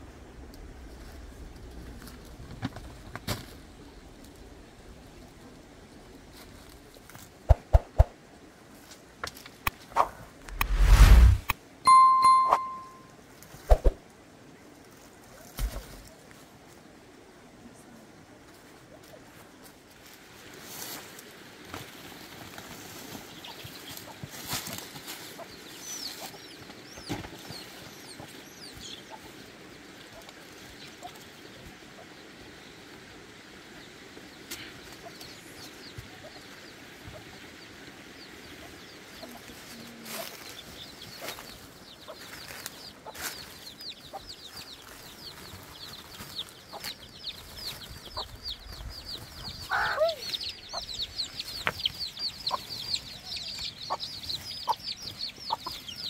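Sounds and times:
soft steady hiss: 0.0 - 56.0
birds chirping: 33.6 - 56.0.

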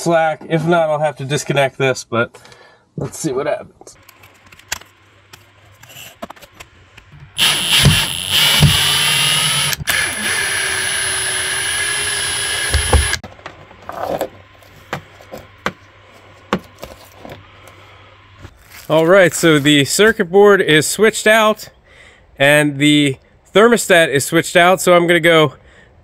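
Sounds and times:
cordless drill whining: 7.2 - 13.2.

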